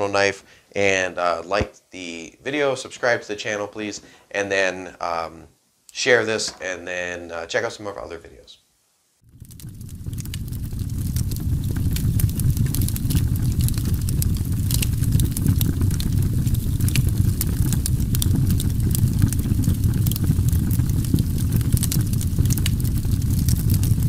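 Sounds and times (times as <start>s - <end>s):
crackles and pops: 9.2s - 24.0s
steady low rumble: 9.3s - 24.0s.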